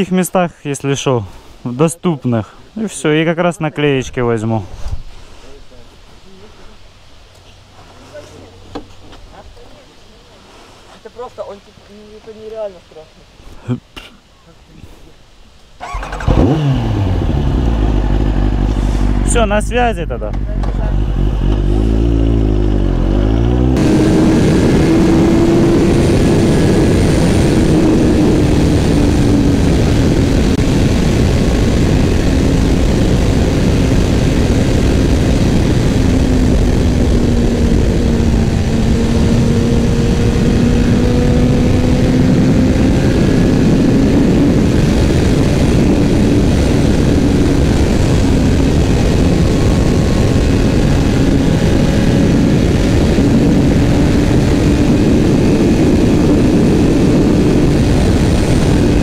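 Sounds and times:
wind noise on microphone: 4.2 - 5.4, 20.8 - 59.0
motorcycle engine cruising: 15.8 - 59.0.

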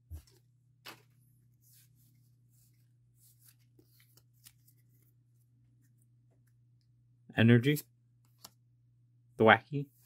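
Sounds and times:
trading cards flicking and sliding: 3.2 - 5.2.

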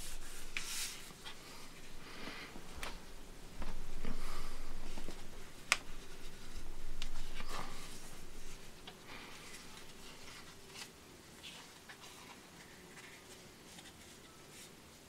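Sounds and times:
paper rustling and rubbing: 0.0 - 1.4, 4.8 - 15.0.

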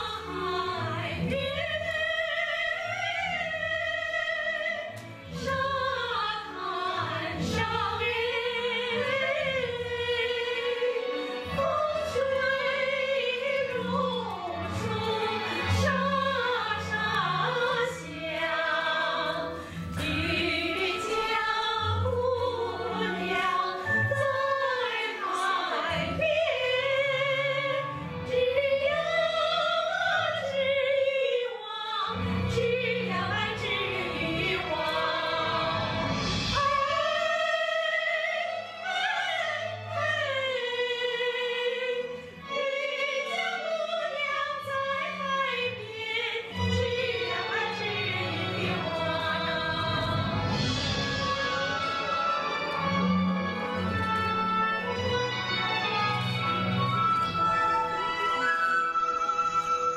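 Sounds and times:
women singing together: 0.0 - 27.9, 28.5 - 38.4.

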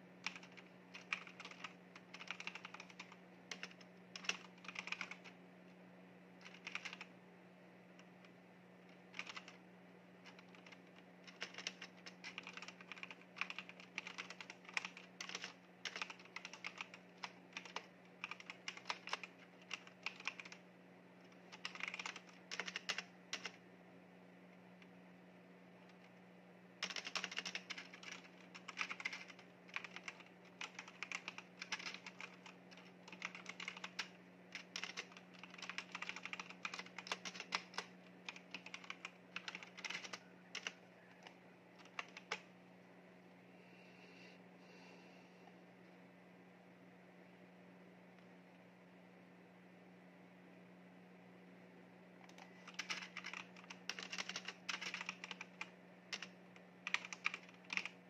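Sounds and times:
mechanical keyboard typing: 0.2 - 5.3, 6.4 - 7.1, 8.9 - 9.6, 10.2 - 20.6, 21.4 - 23.6, 26.8 - 42.5, 52.2 - 58.0.

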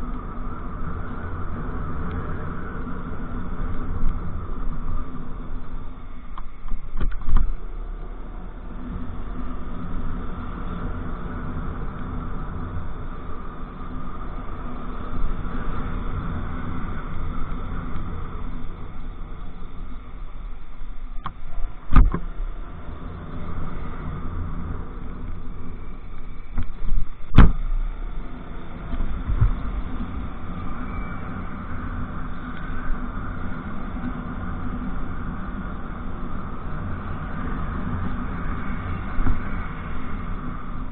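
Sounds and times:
road and wind noise: 0.0 - 40.9.

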